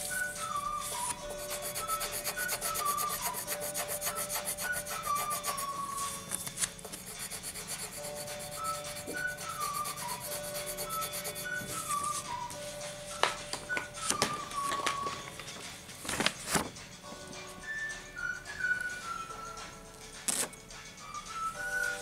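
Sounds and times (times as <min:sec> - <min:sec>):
pencil scratching on paper: 0:00.8 - 0:12.2.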